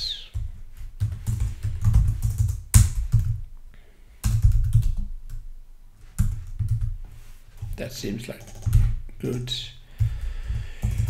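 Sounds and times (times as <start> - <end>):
typing on computer keyboard: 0.4 - 3.4, 4.2 - 5.4, 6.2 - 6.9, 8.4 - 9.4, 10.0 - 11.0.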